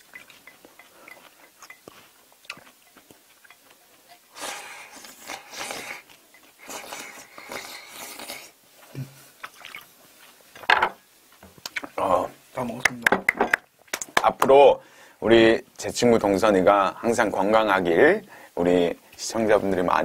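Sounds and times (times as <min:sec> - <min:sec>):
noisy eating of noodles: 0:00.0 - 0:10.4.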